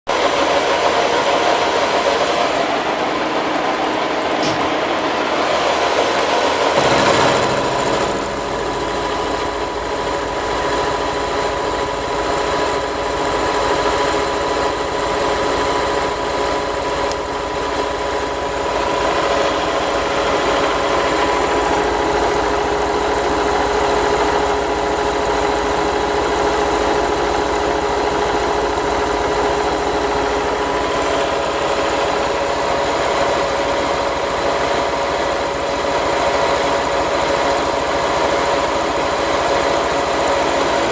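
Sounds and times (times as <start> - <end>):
machine hum: 2.2 - 36.4.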